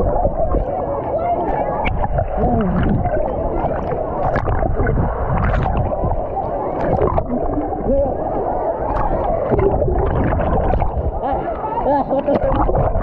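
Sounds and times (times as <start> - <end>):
indistinct voices: 0.0 - 13.0
water sloshing and gurgling: 0.0 - 13.0.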